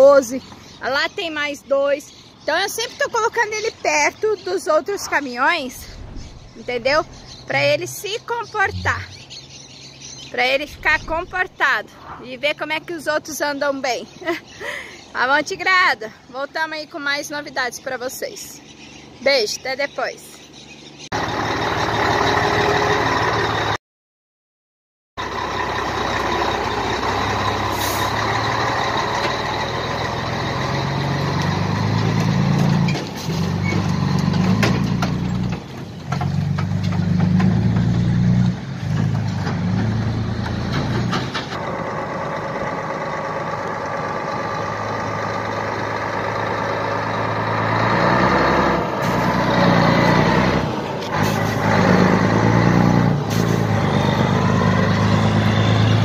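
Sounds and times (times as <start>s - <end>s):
truck diesel engine running: 21.1s - 23.8s, 25.2s - 56.0s.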